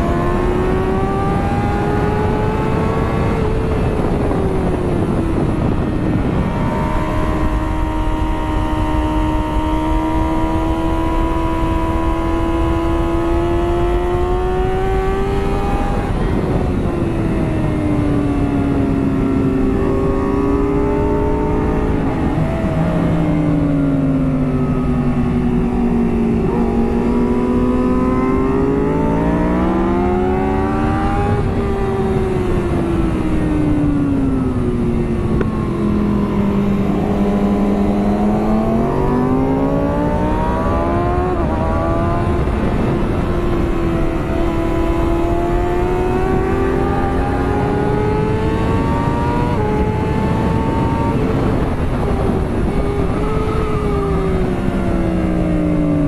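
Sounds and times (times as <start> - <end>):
motorcycle engine at speed: 0.0 - 56.0
wind rushing: 1.0 - 56.0.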